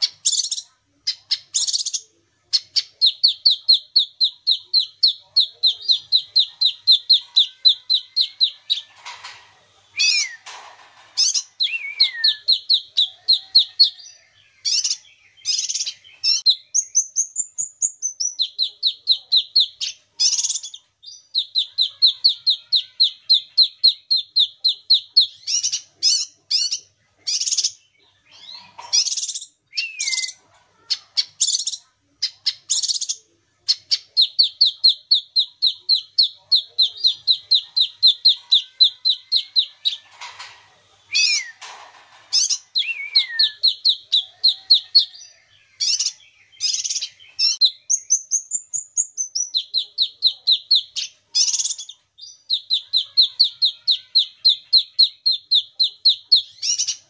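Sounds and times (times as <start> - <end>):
harsh bird chattering: 0.0 - 9.4, 21.4 - 45.2, 49.3 - 57.0.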